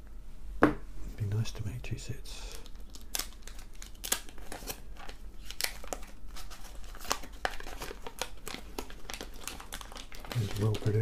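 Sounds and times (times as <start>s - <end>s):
paper wrapper tearing and crinkling: 2.5s - 11.0s.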